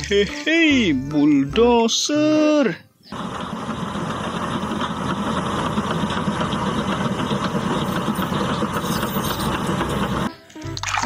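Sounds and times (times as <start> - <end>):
bulldozer diesel engine under load: 3.1 - 10.3.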